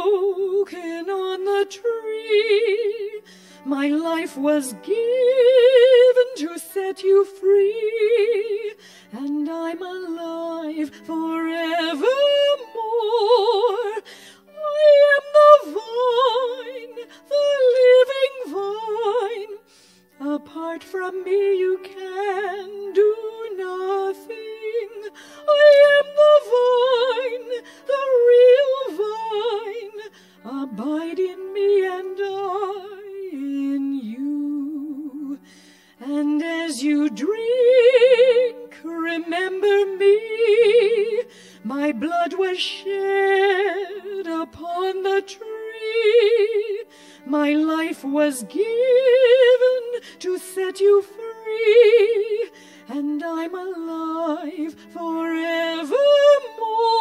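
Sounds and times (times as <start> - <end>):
woman singing slow melody: 0.0 - 19.6, 20.2 - 35.4.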